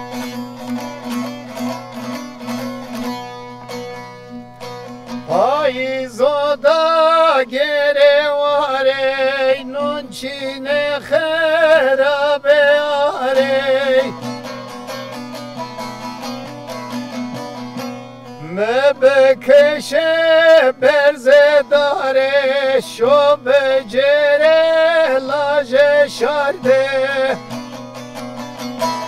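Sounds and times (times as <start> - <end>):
plucked lute: 0.0 - 29.0
man singing with vibrato: 5.3 - 14.6, 18.4 - 27.8.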